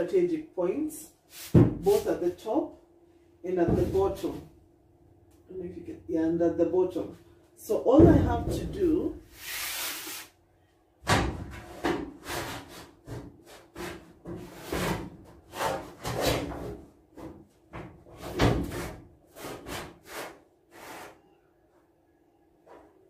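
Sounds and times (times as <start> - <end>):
canvas scraping on steel wall: 9.3 - 10.3.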